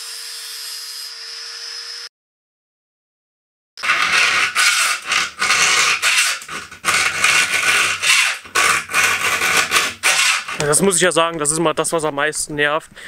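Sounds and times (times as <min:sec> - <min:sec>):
file rasping on chainsaw chain: 0:03.8 - 0:10.8.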